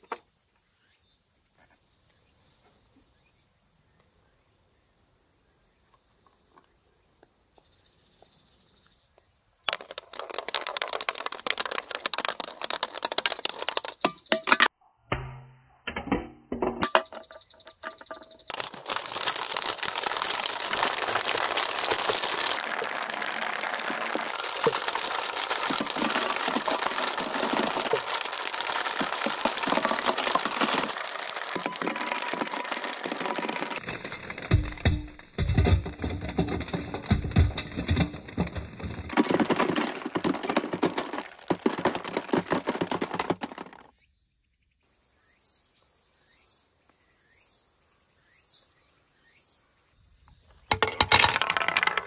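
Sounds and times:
plastic balls rattling in bamboo run: 0:09.7 - 0:14.7, 0:16.0 - 0:43.9, 0:50.7 - 0:52.0.

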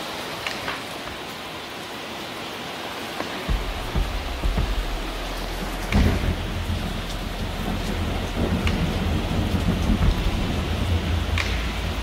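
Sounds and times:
heavy rain falling: 0:00.0 - 0:12.0
sharp drip-like ticks: 0:00.3 - 0:01.4, 0:03.2 - 0:12.0
thunder rumbling: 0:03.5 - 0:12.0.

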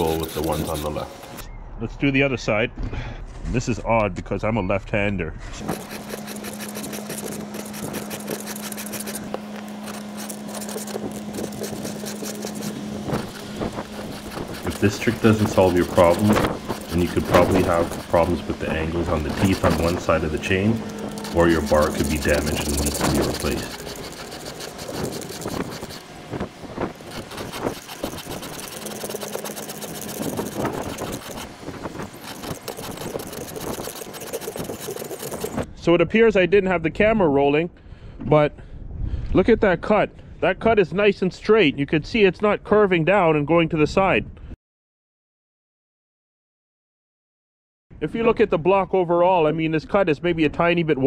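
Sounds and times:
file rasping on chain teeth: 0:00.0 - 0:01.4, 0:05.6 - 0:26.1, 0:26.9 - 0:35.7
steady low hum: 0:00.0 - 0:35.9
knocks of saw turned: 0:05.6 - 0:35.6.

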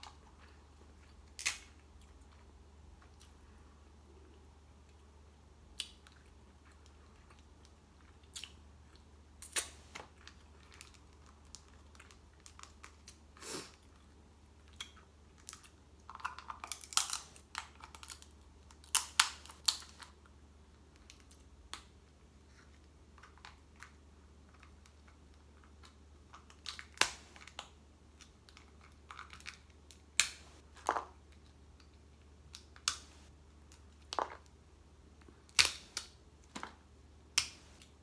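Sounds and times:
crab shells cracking: 0:01.3 - 0:01.7, 0:14.7 - 0:20.1.

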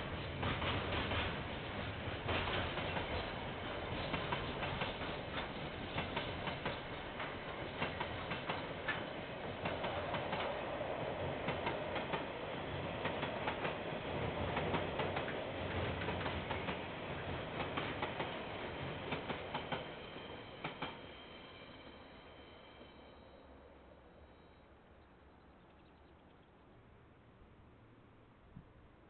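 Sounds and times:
train wheels clacking over rail joints: 0:00.0 - 0:21.2
train rumble: 0:00.0 - 0:25.1.

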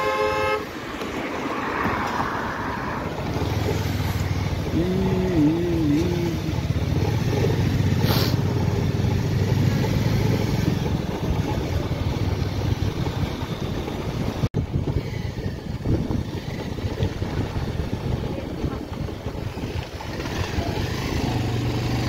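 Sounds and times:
road and wind noise: 0:00.0 - 0:22.0
motorcycle engine running: 0:03.1 - 0:22.0.

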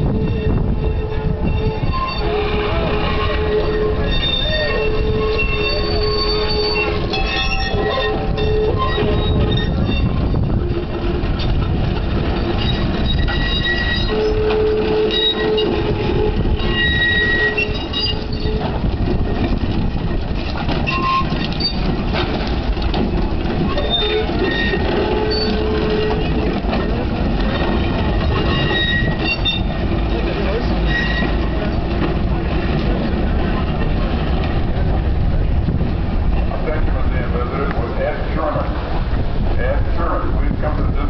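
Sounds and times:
streetcar wheels rumbling on rail: 0:00.0 - 0:41.0
high squeals and whines: 0:12.3 - 0:18.8.

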